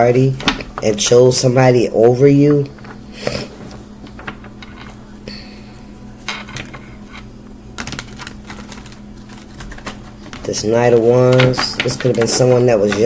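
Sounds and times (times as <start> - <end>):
faint steady hum: 0.0 - 13.0
cards clicking and tapping on table: 7.8 - 13.0.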